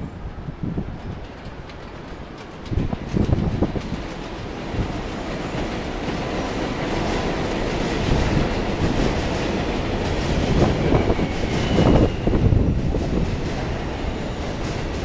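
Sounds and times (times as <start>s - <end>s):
subway train wheels on rails: 0.0s - 15.0s
wheels clacking over rail joints: 1.0s - 12.2s.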